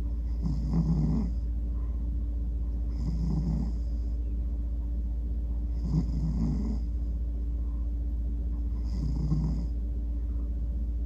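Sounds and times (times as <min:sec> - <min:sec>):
steady low hum: 0:00.0 - 0:11.0
cat snoring: 0:00.2 - 0:01.5, 0:02.9 - 0:04.1, 0:05.7 - 0:07.0, 0:08.7 - 0:09.8.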